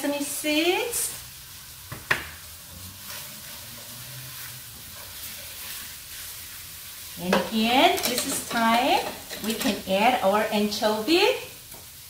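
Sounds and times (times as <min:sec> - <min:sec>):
potatoes sizzling in a pan: 0:00.0 - 0:12.0
wooden spatula stirring: 0:02.6 - 0:10.2.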